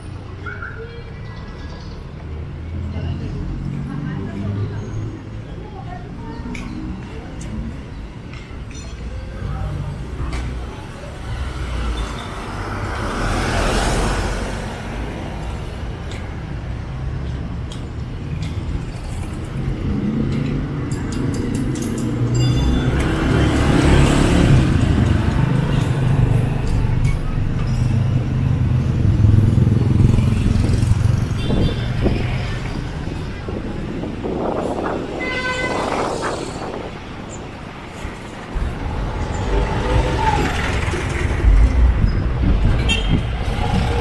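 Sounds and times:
car engines: 0:00.0 - 0:44.0
motorcycle tricycle engine: 0:21.3 - 0:33.1, 0:38.3 - 0:44.0.

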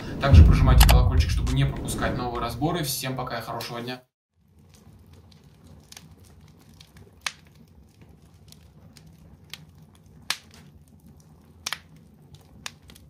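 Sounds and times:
fire crackling: 0:00.0 - 0:02.7, 0:04.3 - 0:13.0
low steady rumble: 0:00.2 - 0:02.7.

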